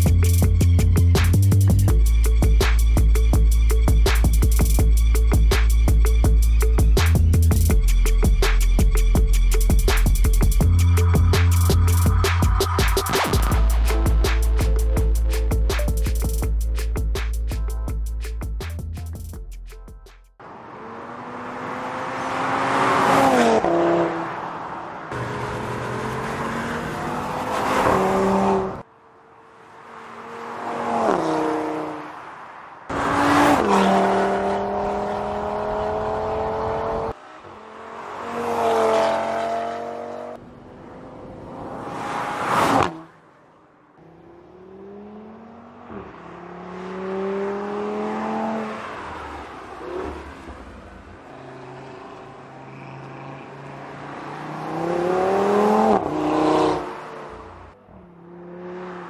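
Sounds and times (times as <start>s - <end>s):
car engine accelerating past: 33.0s - 43.1s, 44.0s - 59.0s.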